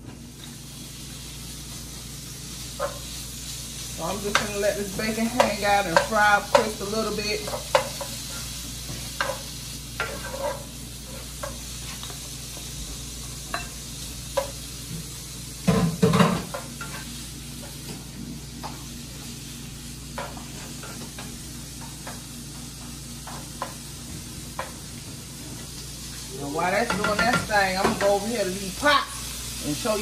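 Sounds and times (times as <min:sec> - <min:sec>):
bacon sizzling in a frying pan: 0:00.0 - 0:30.0
spatula scraping and tapping pan: 0:04.1 - 0:18.0, 0:20.1 - 0:25.8, 0:26.8 - 0:28.2.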